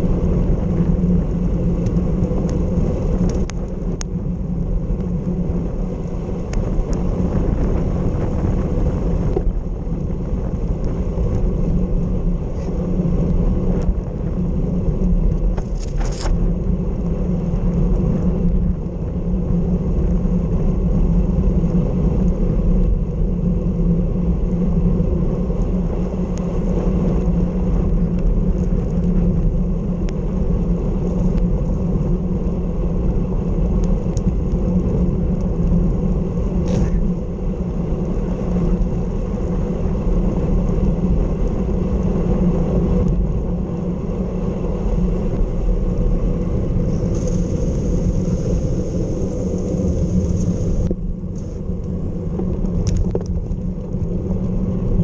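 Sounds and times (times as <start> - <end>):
wind rushing over microphone: 0.0 - 55.0
tyre hiss on wet road: 46.8 - 51.6.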